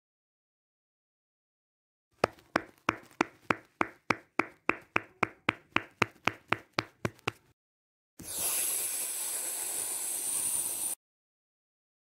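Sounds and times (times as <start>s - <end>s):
hands clapping: 2.2s - 7.5s.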